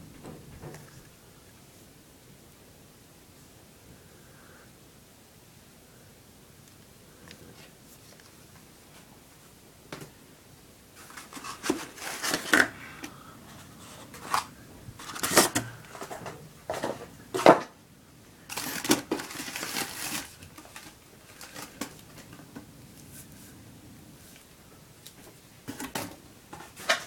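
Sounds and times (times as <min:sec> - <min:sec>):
cardboard scraping and rustling: 0:11.0 - 0:12.8, 0:13.5 - 0:17.7, 0:18.5 - 0:22.2.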